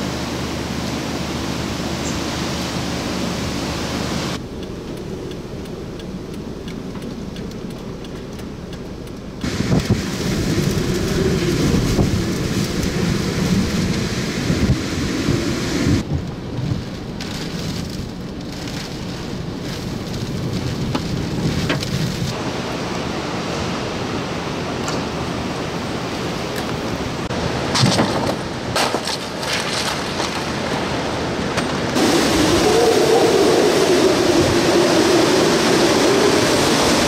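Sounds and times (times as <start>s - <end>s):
heavy rain: 0.0s - 37.0s
wind gusting: 0.0s - 37.0s.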